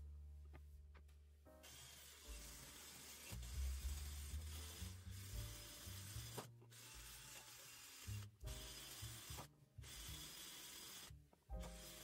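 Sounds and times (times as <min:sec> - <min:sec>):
background music with bass: 0:00.0 - 0:01.6, 0:03.3 - 0:07.1, 0:08.1 - 0:10.0, 0:11.1 - 0:12.0.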